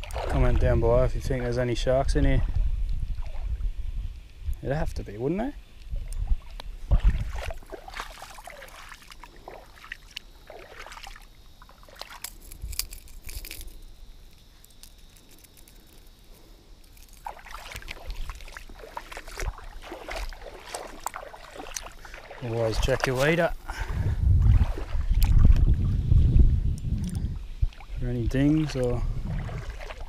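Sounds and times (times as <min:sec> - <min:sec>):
water sloshing: 0:00.0 - 0:01.6, 0:05.9 - 0:26.1, 0:27.0 - 0:30.0
wind on microphone: 0:00.0 - 0:07.7, 0:22.7 - 0:30.0.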